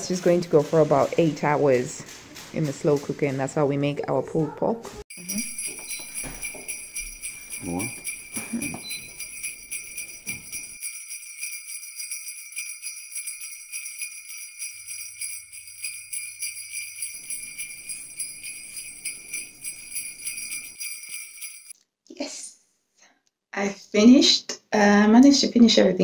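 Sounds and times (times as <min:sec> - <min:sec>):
sleigh bells shaken: 0:05.1 - 0:21.8.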